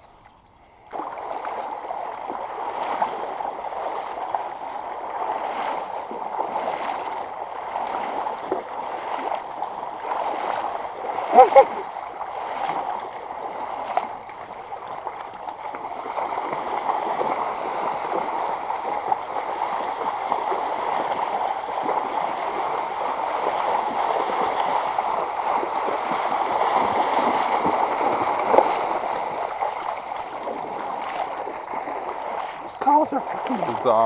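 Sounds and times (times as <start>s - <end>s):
water splashing and gurgling: 0.0s - 34.0s
sharp water splash: 0.9s - 34.0s.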